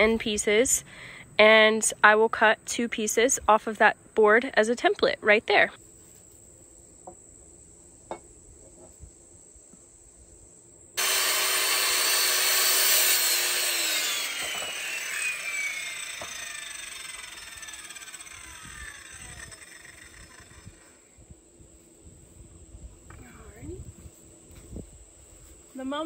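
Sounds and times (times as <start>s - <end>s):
circular saw cutting wood: 11.0s - 21.1s.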